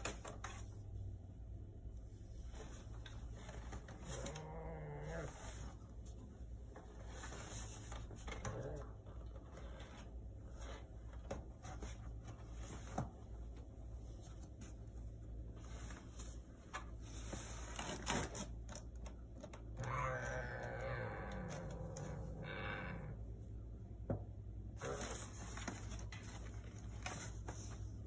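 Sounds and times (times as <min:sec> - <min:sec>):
steady low hum: 0:00.0 - 0:28.0
small clicks and scratchy rustles: 0:02.3 - 0:22.4.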